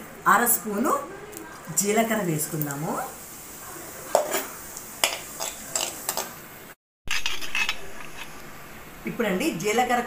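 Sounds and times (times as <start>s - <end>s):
light sizzle of hot oil: 0.0s - 10.0s
metal ladle clicking and scraping: 7.1s - 8.3s.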